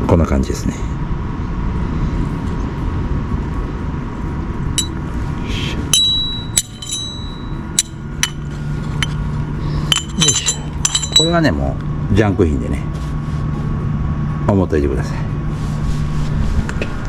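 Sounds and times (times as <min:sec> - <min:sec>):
metal plates clinking: 0:04.8 - 0:05.0, 0:05.9 - 0:09.2, 0:09.8 - 0:11.5.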